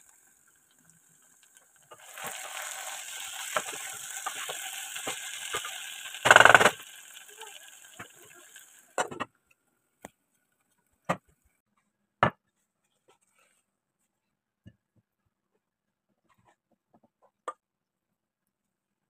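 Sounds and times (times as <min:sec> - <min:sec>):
vegetables sizzling in a pot: 0:00.0 - 0:09.2.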